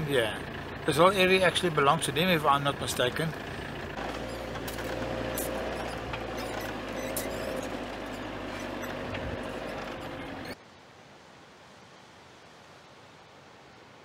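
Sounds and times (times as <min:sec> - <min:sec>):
light rattles: 0:00.0 - 0:10.6
van engine and road noise: 0:00.0 - 0:10.6.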